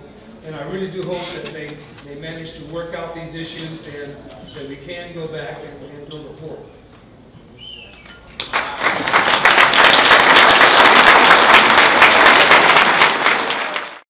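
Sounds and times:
audience applauding: 8.4 - 14.0.

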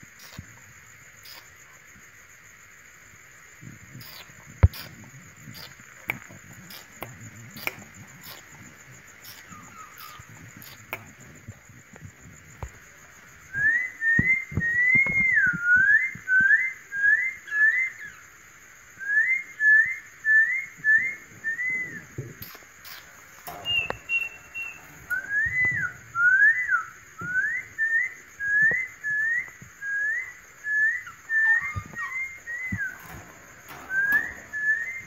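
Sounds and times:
faint clicks: 4.0 - 12.9, 22.2 - 26.0, 31.7 - 35.0
thin high tone: 22.4 - 26.9, 31.4 - 35.0.

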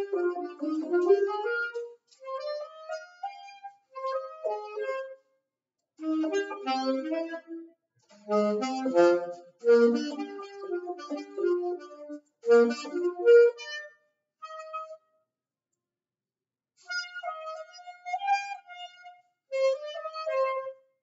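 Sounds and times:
alto saxophone runs: 0.0 - 1.8, 6.0 - 7.4, 8.3 - 13.7.

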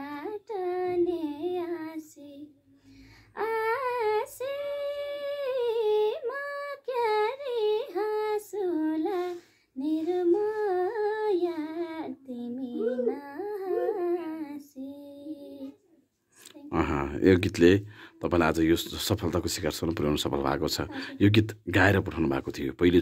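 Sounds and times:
woman singing unaccompanied: 0.0 - 2.7, 3.4 - 15.9.

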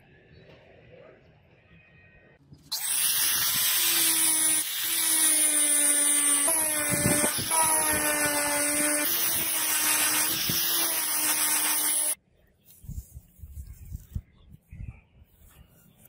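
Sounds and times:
angle grinder motor whine: 2.7 - 12.2
buffing wheel hissing on steel: 2.7 - 12.2.

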